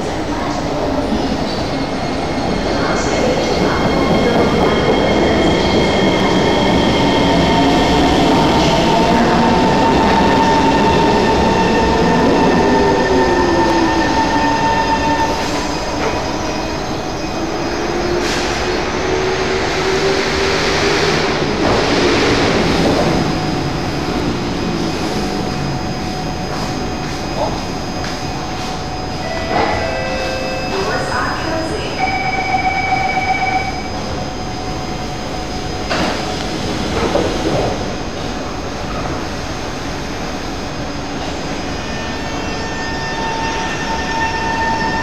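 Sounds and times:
train doors hissing open: 18.0s - 19.0s.

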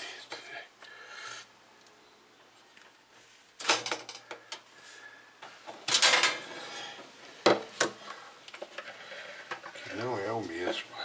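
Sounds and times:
wiring clicking and rattling: 3.6s - 4.6s.

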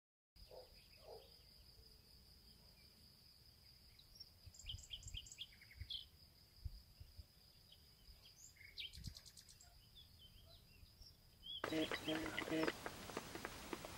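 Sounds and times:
small bird chirps: 3.9s - 6.2s, 7.1s - 12.8s.

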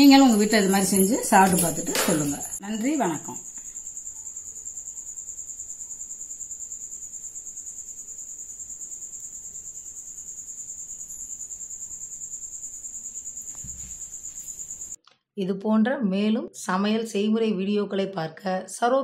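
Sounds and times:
high-pitched pulsing insect trill: 0.0s - 15.0s.

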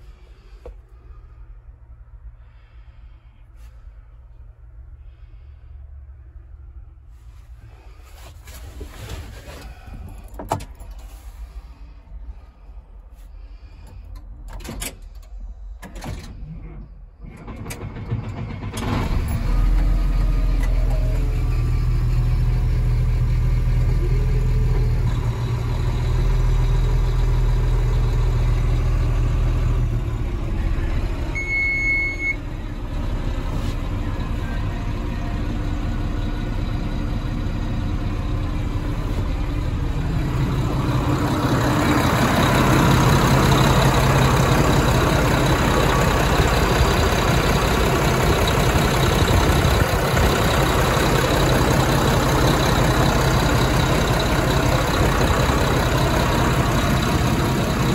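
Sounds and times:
diesel engine cranking and idling: 0.0s - 57.9s
short electronic beep: 31.4s - 32.4s.

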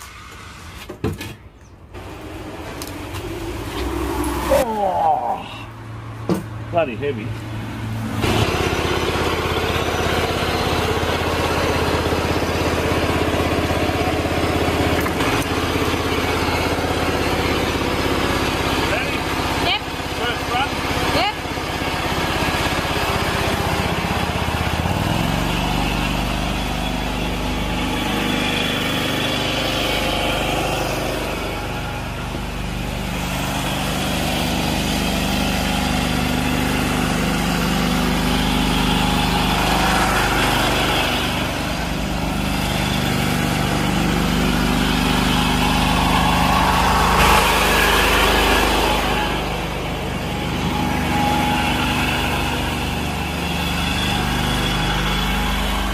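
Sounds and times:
small engine running: 1.9s - 6.0s, 6.7s - 55.9s.

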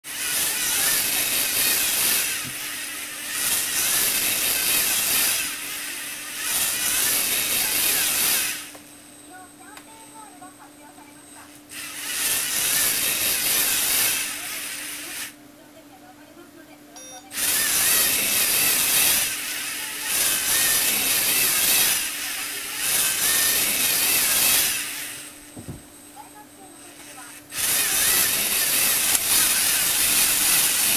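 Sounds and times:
toy motor and gears whirring: 0.0s - 8.8s, 11.7s - 15.4s, 17.3s - 25.5s, 26.2s - 30.9s.

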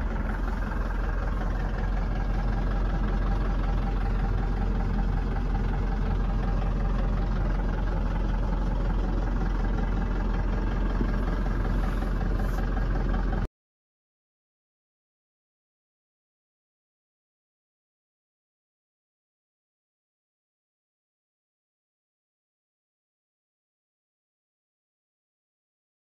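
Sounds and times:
diesel engine idling: 0.0s - 13.5s.

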